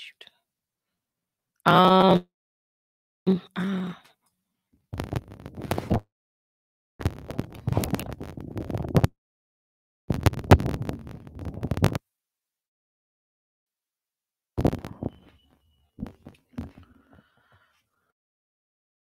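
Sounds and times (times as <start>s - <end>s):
crackling microphone static: 4.9s - 6.0s, 7.0s - 9.2s, 10.1s - 12.0s, 14.6s - 17.4s.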